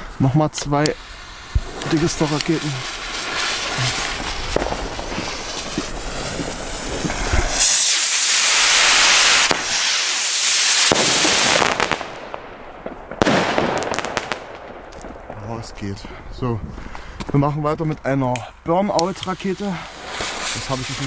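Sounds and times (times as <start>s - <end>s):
rocket launch hiss: 0.8s - 12.5s, 19.7s - 21.0s
firework bang: 1.5s - 15.5s.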